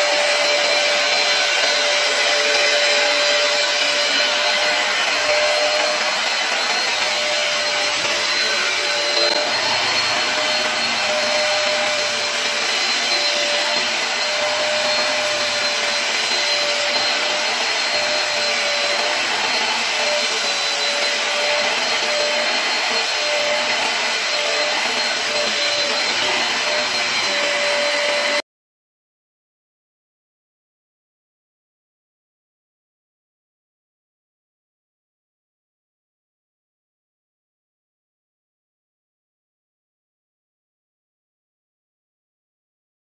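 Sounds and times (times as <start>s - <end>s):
carpet cleaner running: 0.0s - 28.4s.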